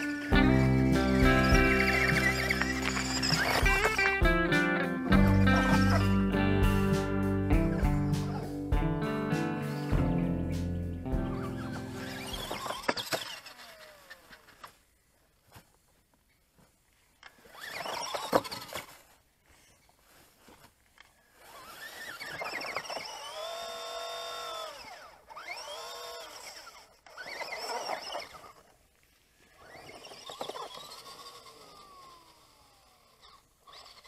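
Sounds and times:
electric motor whining: 0:00.0 - 0:06.8, 0:07.6 - 0:08.6, 0:11.1 - 0:14.7, 0:17.4 - 0:18.9, 0:21.2 - 0:28.8, 0:29.4 - 0:34.0.

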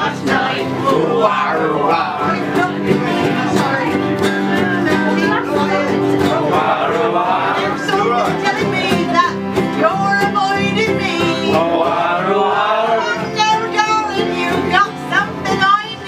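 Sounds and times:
strummed ukulele and guitar: 0:00.0 - 0:16.0
wavering melody line: 0:02.0 - 0:09.4.

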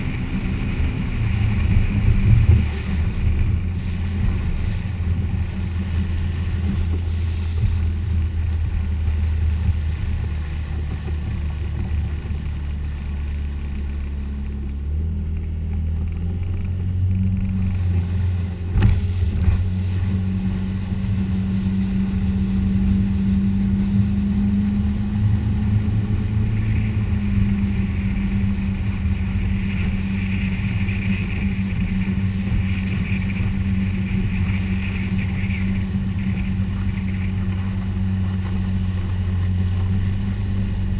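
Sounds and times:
motorboat engine running: 0:00.0 - 0:40.9.

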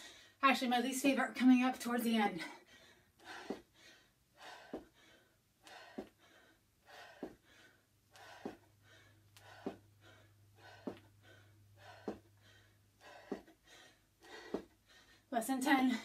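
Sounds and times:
person panting: 0:02.4 - 0:15.3
feet thudding on carpet: 0:07.2 - 0:07.5, 0:09.4 - 0:09.9, 0:10.6 - 0:11.1, 0:11.8 - 0:12.3, 0:13.1 - 0:13.5, 0:14.3 - 0:14.8.

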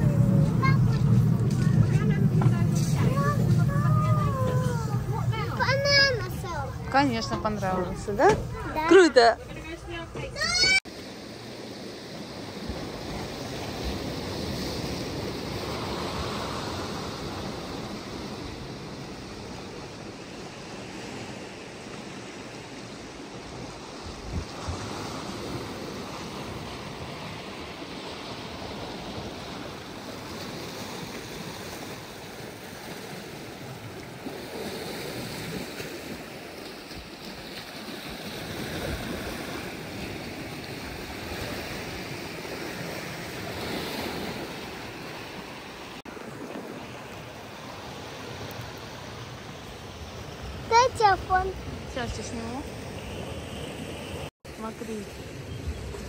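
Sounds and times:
wind on microphone: 0:00.0 - 0:10.8, 0:22.9 - 0:45.8
sea waves washing on shore: 0:00.0 - 0:56.0.

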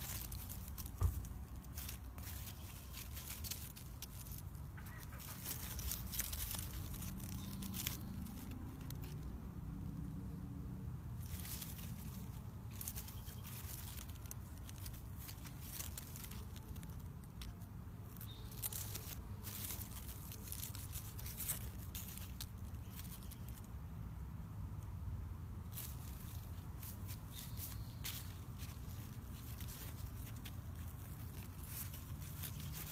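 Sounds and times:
plant leaves rustling: 0:00.0 - 0:24.1, 0:25.5 - 0:32.9
low steady rumble: 0:00.0 - 0:32.9.

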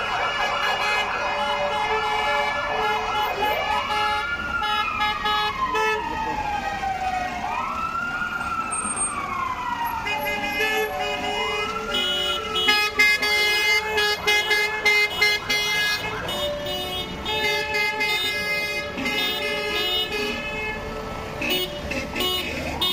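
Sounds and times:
siren wailing: 0:00.0 - 0:14.8
vehicle horns honking: 0:10.1 - 0:22.9.

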